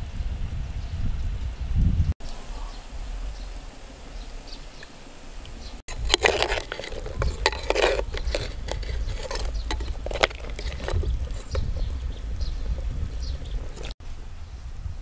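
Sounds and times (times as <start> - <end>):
metal spoon scraping clay pot: 5.9 - 14.0.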